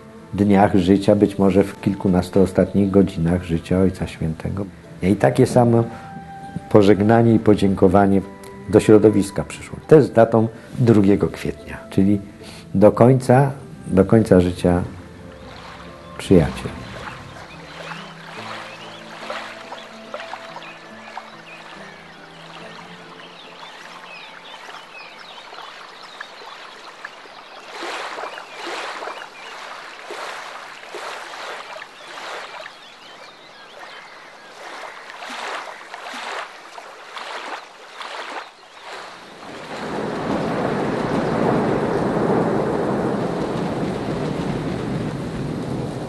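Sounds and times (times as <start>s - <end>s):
water lapping: 13.7s - 46.0s
paddle splashing: 14.6s - 46.0s
heavy rain rushing: 14.8s - 32.6s, 38.8s - 46.0s.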